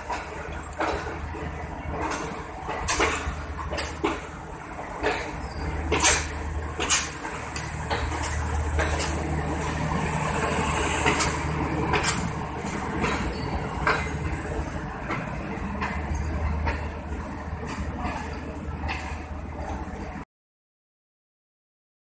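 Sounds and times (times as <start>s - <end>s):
train rolling rumble: 0.0s - 20.2s
train wheels clacking over rail joints: 0.0s - 20.2s.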